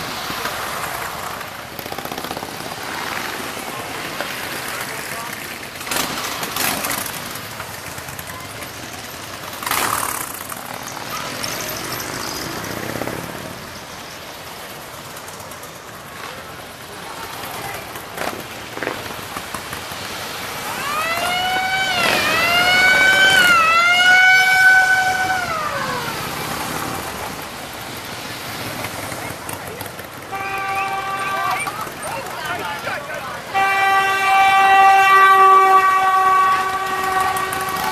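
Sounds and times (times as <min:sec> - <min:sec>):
motorcycles riding past: 0:00.0 - 0:37.9
wailing siren: 0:20.6 - 0:26.6, 0:33.6 - 0:37.9.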